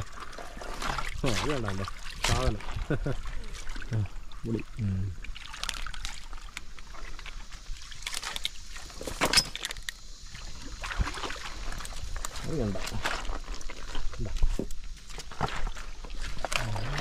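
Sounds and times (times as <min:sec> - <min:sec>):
stream water trickling: 0:00.0 - 0:17.0.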